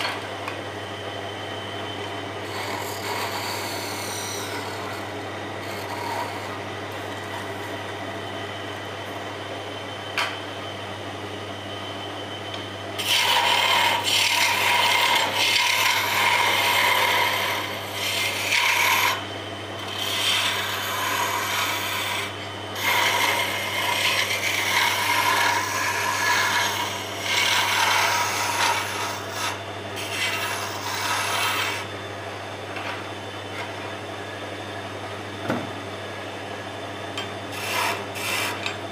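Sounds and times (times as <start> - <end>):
chisel scraping spinning wood: 0.0 - 0.3, 2.4 - 8.0, 13.0 - 31.9, 37.5 - 38.9
wood lathe humming: 0.0 - 9.3, 13.0 - 32.8, 37.2 - 38.9.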